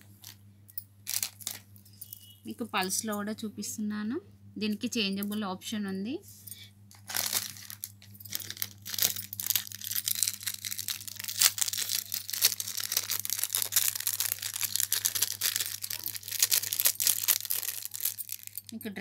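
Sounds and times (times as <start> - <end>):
crackly rustling and crinkling: 0.0 - 3.0, 6.9 - 19.0
steady low hum: 0.0 - 19.0.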